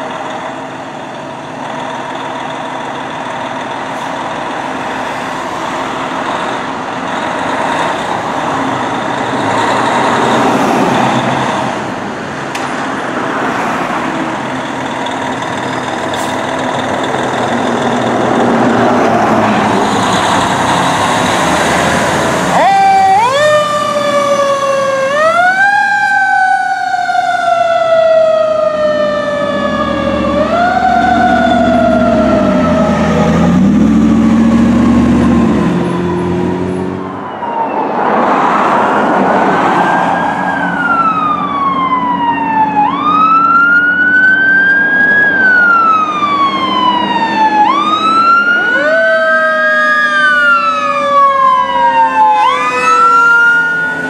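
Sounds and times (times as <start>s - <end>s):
passing truck engine: 0.0s - 54.0s
mechanical siren wailing: 22.2s - 38.3s, 39.7s - 54.0s.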